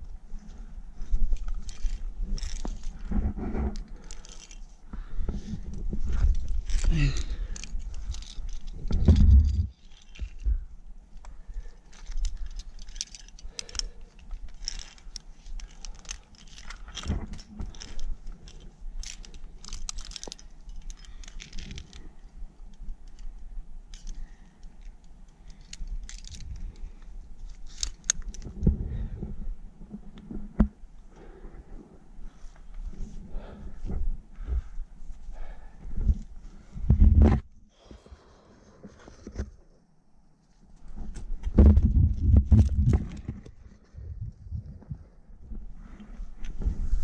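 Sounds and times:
climbing hardware clinking: 1.1s - 29.2s.

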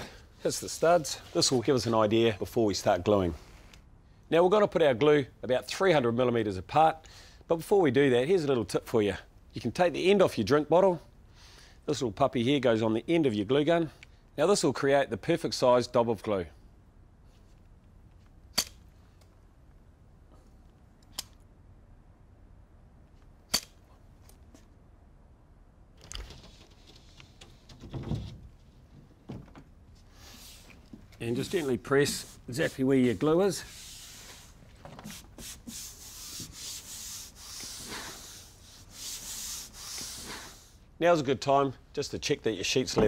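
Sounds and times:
hand brushing on plasterboard: 30.1s - 40.8s.

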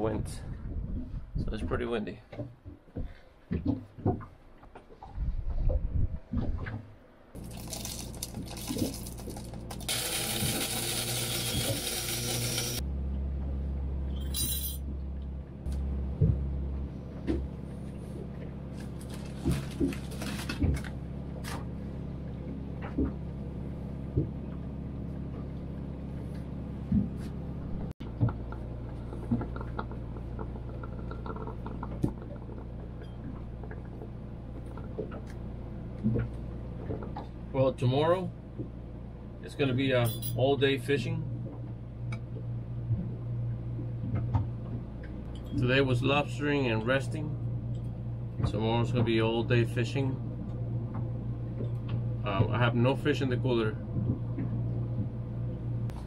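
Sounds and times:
low machine hum: 0.0s - 56.0s
liquid pouring: 7.4s - 12.8s.

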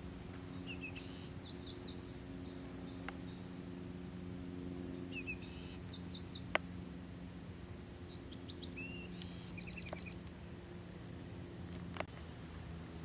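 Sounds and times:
low steady hum: 0.0s - 13.0s
songbird chirping: 0.3s - 3.6s, 4.9s - 6.6s, 7.4s - 10.4s.

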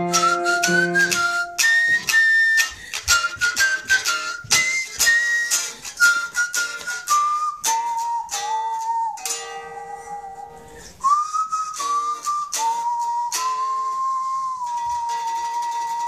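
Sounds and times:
sustained guitar melody line: 0.0s - 16.0s
electric guitar chord strokes: 9.2s - 11.1s.

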